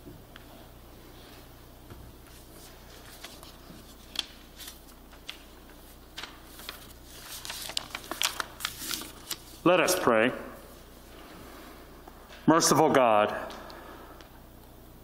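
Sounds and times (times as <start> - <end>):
steady low hum: 0.0 - 15.0
paper rustling: 2.2 - 10.0.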